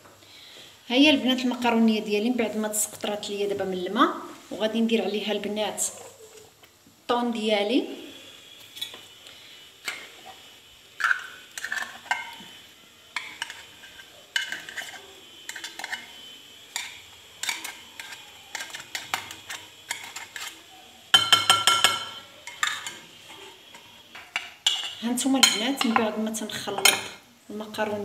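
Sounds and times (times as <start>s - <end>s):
utensil scraping a glass bowl: 13.2s - 16.1s.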